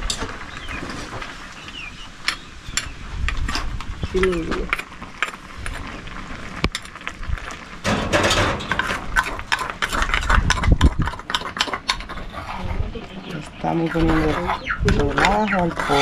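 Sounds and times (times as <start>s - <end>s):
metal spoon scraping in mortar: 8.6s - 16.0s.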